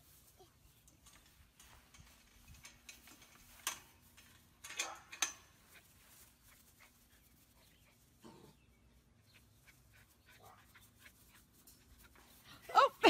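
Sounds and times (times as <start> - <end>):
fence gate clicks and rattle: 0.8 - 5.9.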